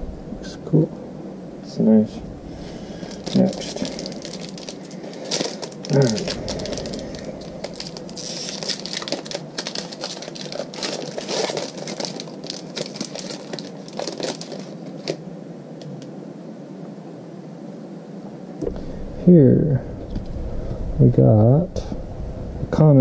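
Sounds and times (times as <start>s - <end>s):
foil pack crinkling: 2.6s - 15.2s.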